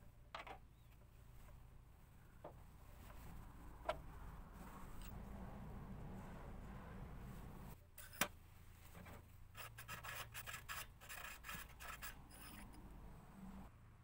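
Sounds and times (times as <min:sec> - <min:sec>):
metal rubbing on metal: 0:09.5 - 0:12.8.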